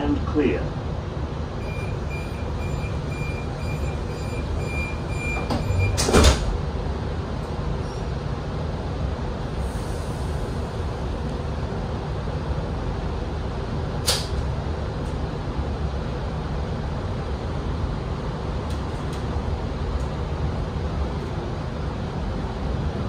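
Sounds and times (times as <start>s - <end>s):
low carriage hum: 0.0s - 23.0s
door warning beeps: 1.6s - 6.3s
sliding doors thudding shut: 5.0s - 6.6s.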